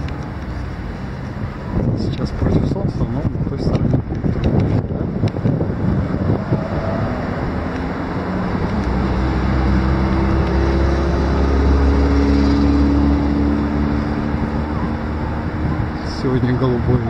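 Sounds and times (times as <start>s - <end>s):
outdoor noise: 0.0s - 17.0s
vehicle engine passing: 4.2s - 17.0s.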